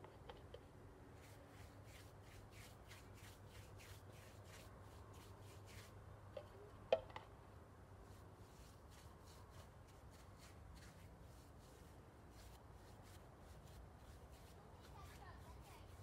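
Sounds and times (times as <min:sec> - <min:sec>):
low steady hum: 0:00.0 - 0:16.0
rhythmic rubbing strokes: 0:01.2 - 0:05.9.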